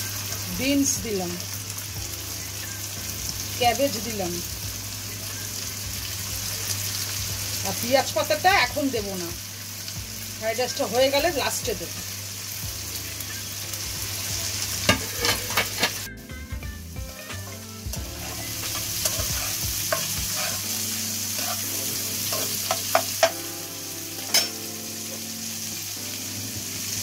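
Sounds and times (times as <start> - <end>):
vegetables sizzling in oil: 0.0 - 27.0
spatula scraping wok: 14.6 - 16.1, 17.2 - 23.5.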